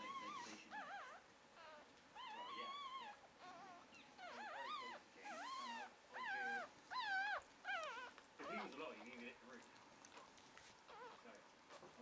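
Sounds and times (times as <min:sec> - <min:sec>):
puppies squealing and whimpering: 0:00.0 - 0:09.2, 0:10.1 - 0:12.0.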